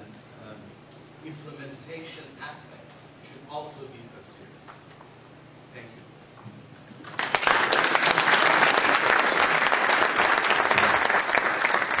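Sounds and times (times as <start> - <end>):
audience applause: 7.0 - 12.0.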